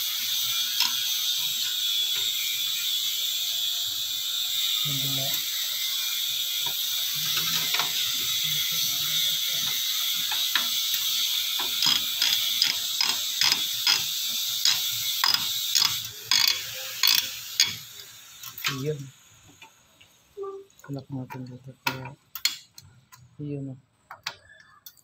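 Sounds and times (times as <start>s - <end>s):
steady high hiss: 0.0s - 22.8s
sharp mechanical clicks: 9.7s - 17.3s.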